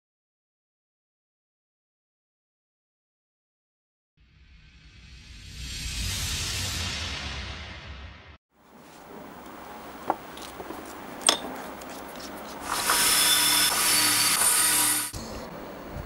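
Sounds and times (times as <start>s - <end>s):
steel rod scraping and tapping iron: 11.2s - 11.6s
iron grinding on abrasive wheel: 12.6s - 15.2s.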